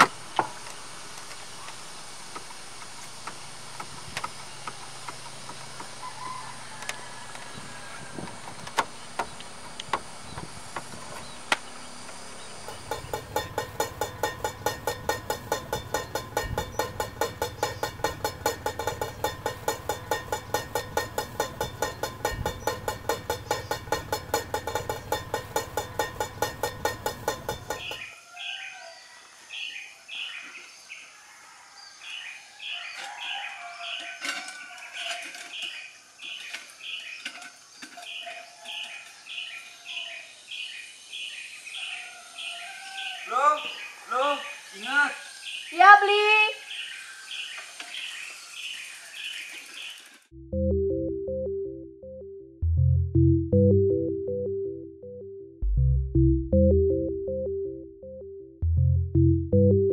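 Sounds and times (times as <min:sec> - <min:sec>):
steady hiss: 0:00.0 - 0:28.0
birds chirping: 0:03.4 - 0:31.2, 0:32.0 - 0:50.4
mechanical pulsing: 0:11.7 - 0:28.1.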